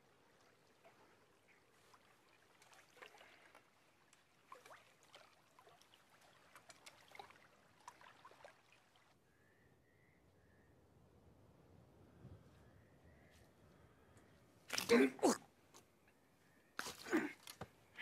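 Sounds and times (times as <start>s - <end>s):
water sloshing and splashing: 0.0s - 9.2s.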